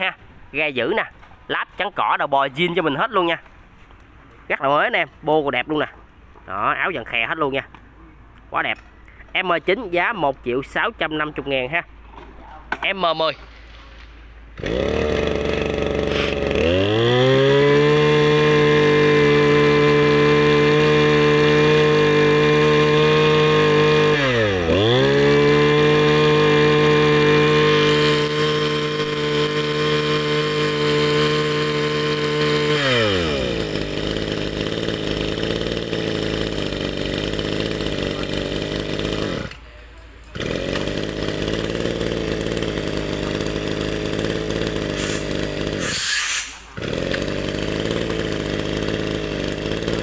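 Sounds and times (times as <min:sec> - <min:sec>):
brush cutter engine revving: 0:14.6 - 0:50.0.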